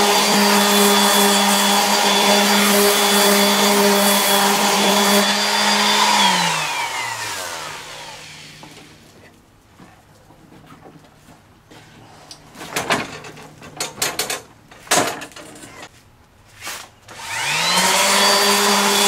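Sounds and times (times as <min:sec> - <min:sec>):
orbital sander running: 0:00.0 - 0:09.0, 0:17.2 - 0:19.0
sander winding down: 0:00.0 - 0:09.0, 0:17.1 - 0:19.0.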